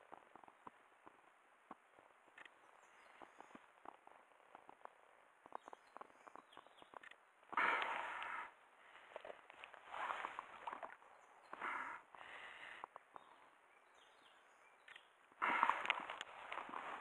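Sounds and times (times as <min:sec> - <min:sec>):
rustle with sharp clicks: 0:00.0 - 0:08.4, 0:14.8 - 0:17.0.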